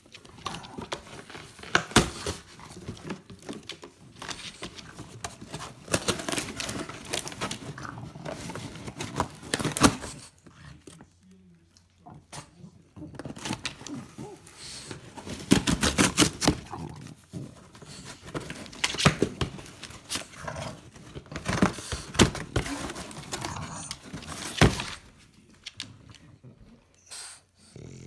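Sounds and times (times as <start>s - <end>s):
dog tearing cardboard: 0.2s - 10.4s, 13.1s - 25.2s.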